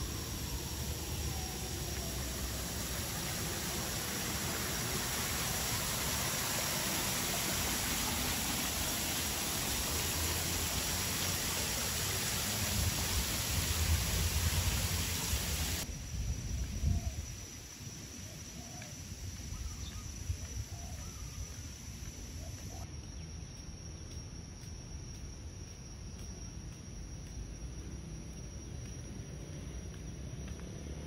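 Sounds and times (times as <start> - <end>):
outdoor background: 0.0 - 31.0
water cascading over rocks: 1.7 - 15.8.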